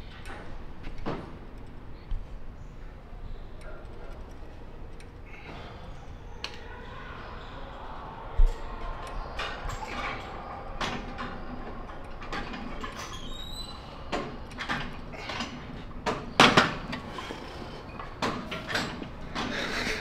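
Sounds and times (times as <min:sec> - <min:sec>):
weight stack sliding on rods: 0:14.1 - 0:20.0.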